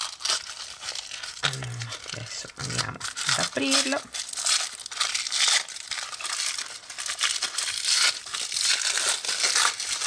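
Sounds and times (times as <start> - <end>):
paper wrapping crinkling: 0.0 - 10.0.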